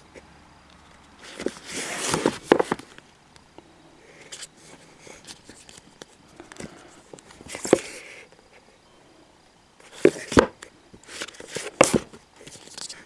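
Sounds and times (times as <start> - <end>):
book sliding out: 1.2 - 2.8.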